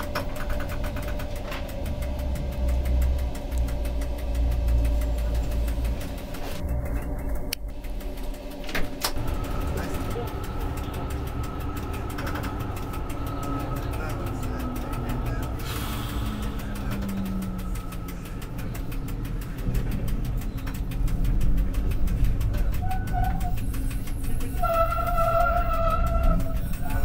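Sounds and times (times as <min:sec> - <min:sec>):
tram motor whine: 0:00.0 - 0:27.0
wheels rumbling on track: 0:00.0 - 0:27.0
high wheel squeals: 0:09.2 - 0:20.8, 0:22.0 - 0:27.0.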